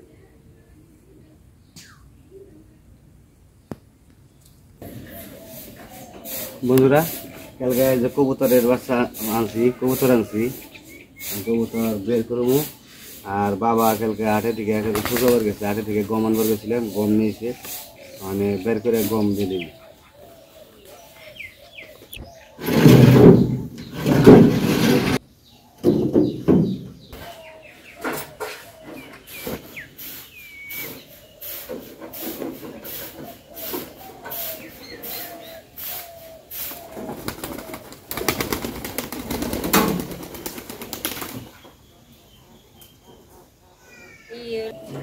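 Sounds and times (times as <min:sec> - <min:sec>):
small birds chirping: 0:00.1 - 0:24.3, 0:25.2 - 0:45.0
pigeons cooing: 0:04.8 - 0:24.2, 0:26.6 - 0:45.0
rustling and knocking: 0:22.6 - 0:25.2, 0:25.8 - 0:27.3.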